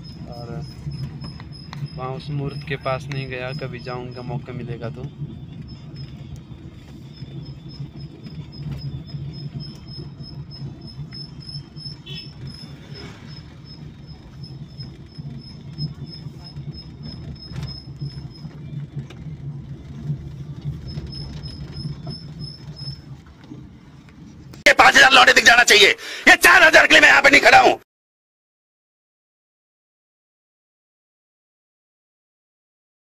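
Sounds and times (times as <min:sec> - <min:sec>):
vehicle engine and road rumble: 0:00.0 - 0:24.7.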